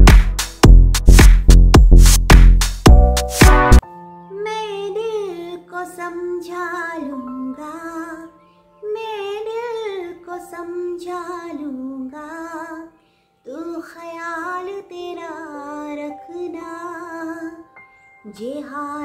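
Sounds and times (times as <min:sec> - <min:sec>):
woman singing with vibrato: 0:13.5 - 0:17.7.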